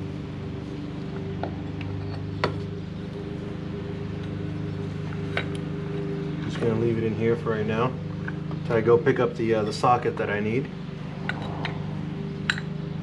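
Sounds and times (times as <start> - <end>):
steady low hum: 0.0 - 13.0
metal parts clicking and clinking: 11.2 - 11.8, 12.4 - 12.7.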